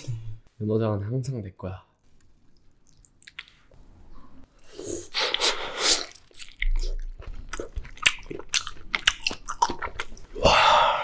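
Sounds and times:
wet slurping and squishing: 0:02.5 - 0:03.7.

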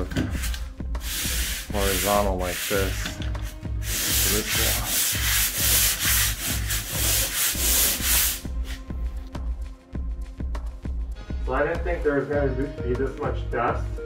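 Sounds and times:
sanding pad scraping drywall: 0:01.1 - 0:03.1, 0:03.9 - 0:08.8.

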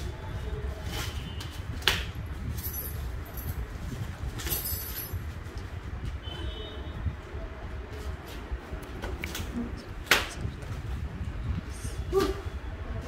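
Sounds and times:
metal chains clinking: 0:02.5 - 0:03.6, 0:04.4 - 0:05.3.

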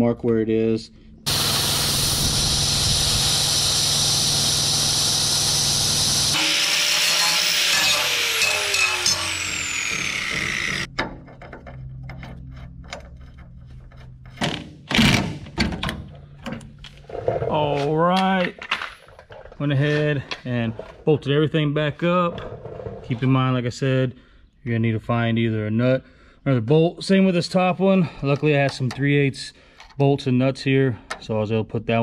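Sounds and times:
angle grinder cutting metal: 0:01.3 - 0:10.9
grinder spinning down whine: 0:01.3 - 0:10.9.

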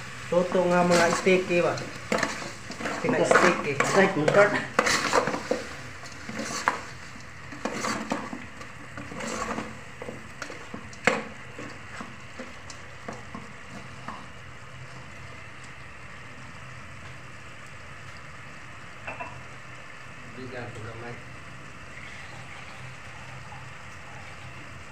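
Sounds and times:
food sizzling: 0:00.0 - 0:24.9
metal spoon stirring in pot: 0:00.5 - 0:15.7.

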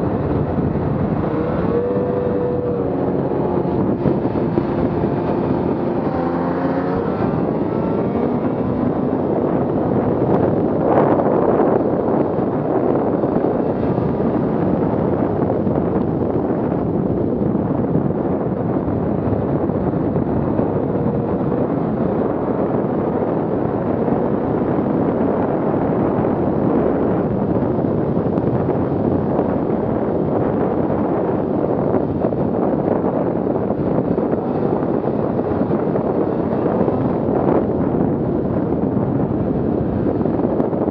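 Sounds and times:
snowmobile engine running: 0:00.0 - 0:17.3
wind rush on microphone: 0:00.0 - 0:40.9.

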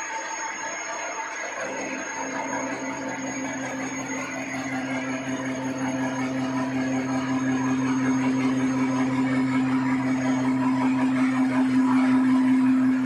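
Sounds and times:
milling machine humming: 0:01.6 - 0:13.0.

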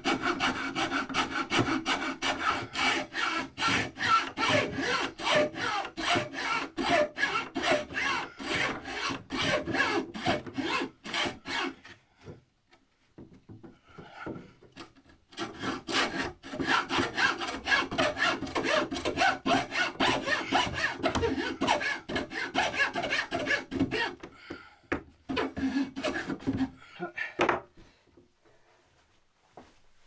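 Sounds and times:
hand saw cutting wood: 0:00.0 - 0:12.0, 0:14.3 - 0:24.3, 0:25.3 - 0:26.8.

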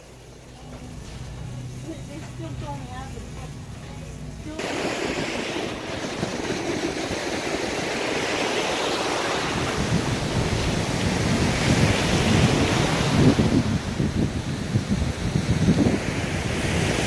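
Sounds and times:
ocean surf washing in: 0:00.0 - 0:17.0
wind buffeting microphone: 0:04.6 - 0:17.0.

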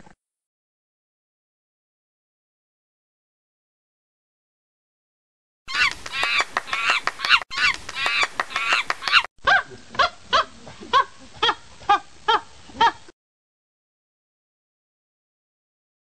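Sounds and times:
high rise-and-fall animal calls: 0:05.7 - 0:09.7.

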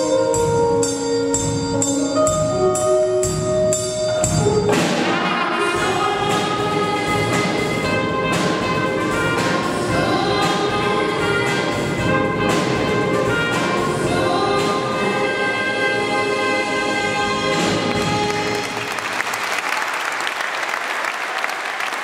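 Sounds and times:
steady beat: 0:00.0 - 0:15.2
keyboard: 0:00.0 - 0:19.1
trumpet: 0:00.0 - 0:19.2
youth choir singing: 0:09.6 - 0:11.9, 0:13.8 - 0:18.0.

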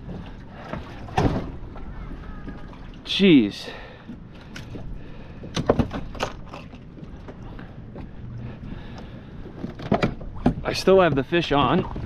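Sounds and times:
low rumble of wind and water: 0:00.0 - 0:12.0
sharp knocks and clatters: 0:05.5 - 0:06.8.

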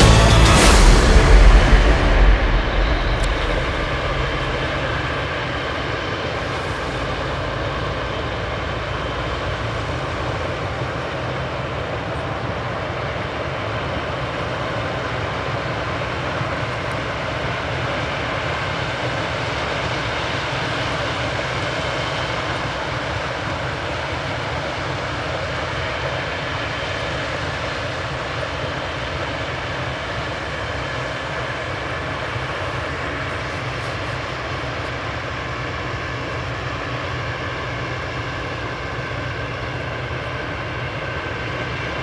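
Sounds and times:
harvest machinery running: 0:00.0 - 0:14.4, 0:30.5 - 0:42.0.

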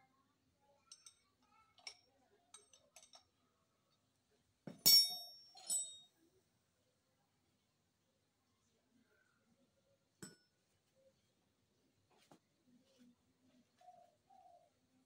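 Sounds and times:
light clicks of metal parts: 0:00.8 - 0:03.4
ringing metallic clanks: 0:04.7 - 0:06.1.

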